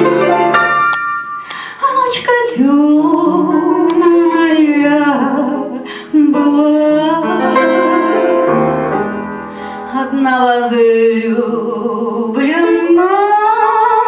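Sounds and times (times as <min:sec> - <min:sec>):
upright piano accompaniment: 0:00.0 - 0:01.7, 0:03.0 - 0:10.8
woman singing slow folk song: 0:01.7 - 0:07.8, 0:09.9 - 0:14.0.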